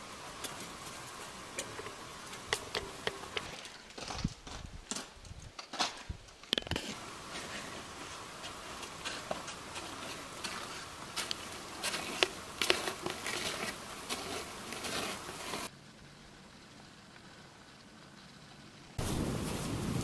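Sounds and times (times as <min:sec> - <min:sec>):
steady hiss: 0:00.0 - 0:03.9, 0:06.2 - 0:20.0
footsteps crunching on snow: 0:06.8 - 0:15.7.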